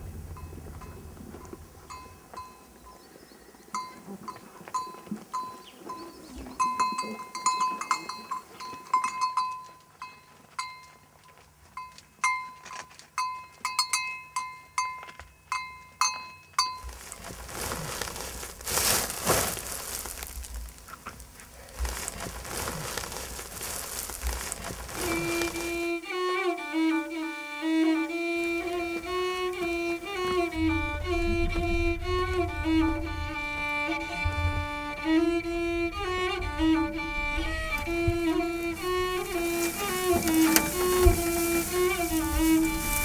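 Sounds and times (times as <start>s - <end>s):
metal livestock bells clinking: 1.8s - 3.0s, 3.7s - 17.0s.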